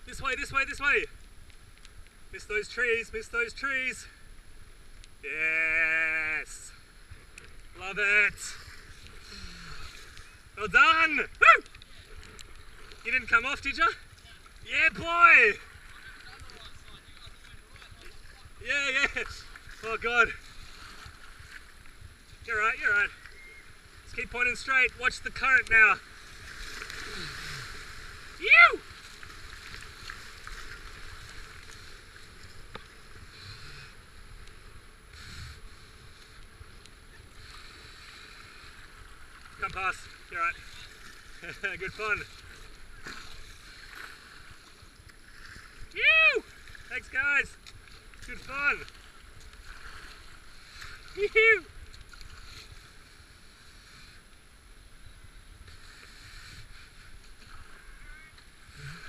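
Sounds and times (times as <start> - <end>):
water splashing: 5.3 - 53.8
rushing whitewater: 22.3 - 33.6, 45.4 - 52.7.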